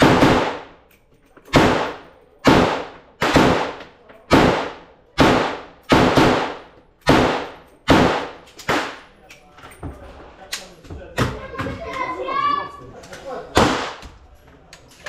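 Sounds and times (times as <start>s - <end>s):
gunshots echoing: 0.0s - 0.9s, 1.5s - 9.2s, 13.5s - 14.0s.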